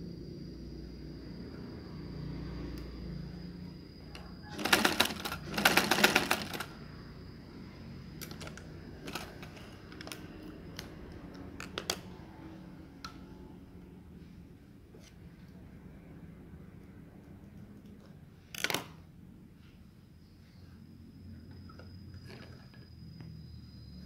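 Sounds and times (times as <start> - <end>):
sewing machine stitching: 4.5 - 6.8, 9.1 - 9.6.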